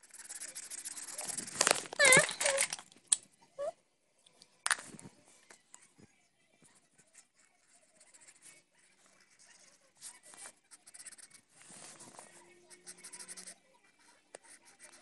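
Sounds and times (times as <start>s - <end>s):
marker scribbling on paper: 0.0s - 1.7s, 6.8s - 15.0s
high-pitched marker squeaks: 0.0s - 2.7s, 10.3s - 12.0s, 12.7s - 13.6s.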